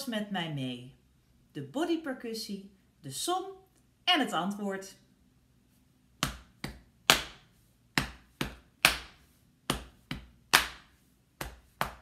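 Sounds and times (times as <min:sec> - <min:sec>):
handclap: 0:06.2 - 0:12.0.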